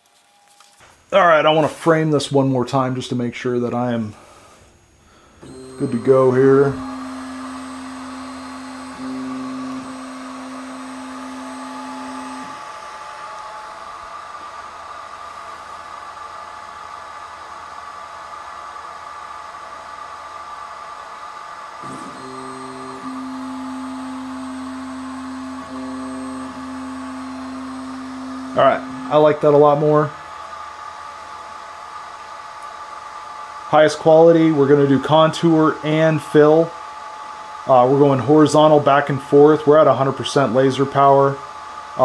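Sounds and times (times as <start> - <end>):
constant motor whir: 4.9 - 18.8, 19.4 - 39.6
stepper motors whining: 5.4 - 14.8, 21.8 - 30.6.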